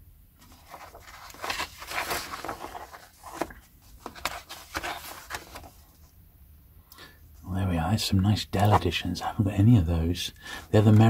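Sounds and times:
book pages turning: 0.4s - 6.1s, 8.6s - 9.0s, 10.8s - 11.0s.

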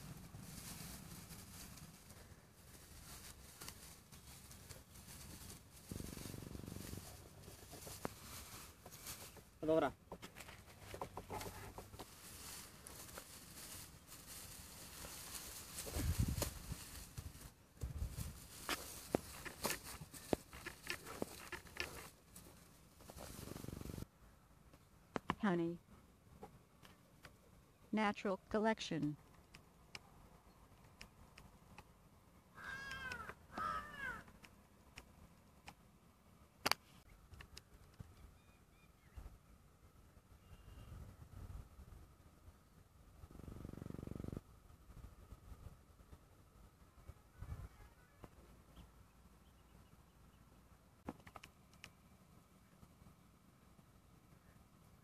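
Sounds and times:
light crackles: 0.0s - 9.6s, 10.2s - 24.1s
dry straw rustling: 0.0s - 24.0s
drawn-out animal calls: 32.6s - 34.3s.

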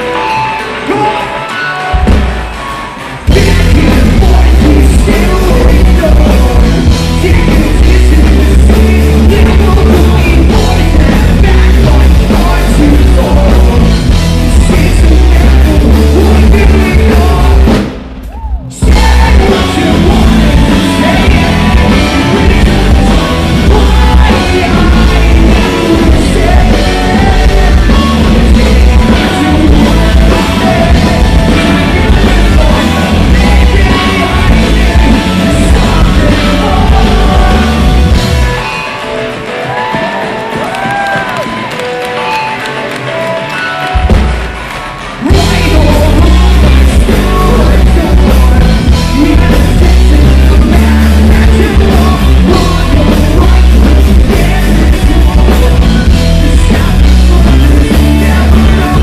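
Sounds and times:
bass guitar: 0.0s - 59.0s
drum kit: 0.0s - 59.0s
electric guitar: 0.0s - 59.0s
shouted sung lead vocal: 18.3s - 38.7s, 45.2s - 59.0s.

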